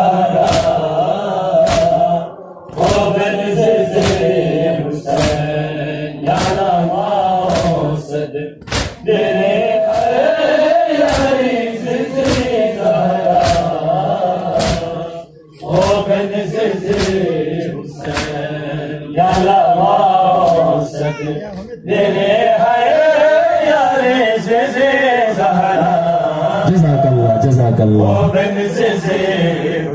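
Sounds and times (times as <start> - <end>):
crowd of men chanting: 0.0 - 29.9
hands slapping chests: 0.4 - 0.9, 1.6 - 2.0, 3.9 - 4.3, 5.1 - 5.5, 6.3 - 6.7, 7.4 - 7.8, 8.6 - 9.0, 11.0 - 11.4, 12.2 - 12.6, 13.3 - 13.8, 14.5 - 14.9, 16.8 - 17.3, 18.0 - 18.5, 19.2 - 19.6, 20.4 - 20.7.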